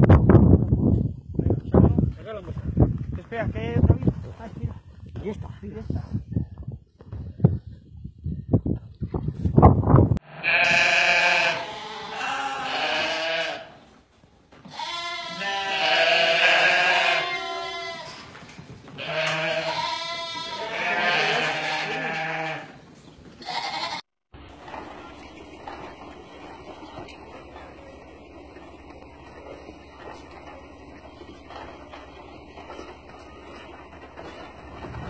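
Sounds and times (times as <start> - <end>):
sheep bleating: 10.2 - 13.8, 14.7 - 18.2, 19.0 - 22.8, 23.4 - 24.0.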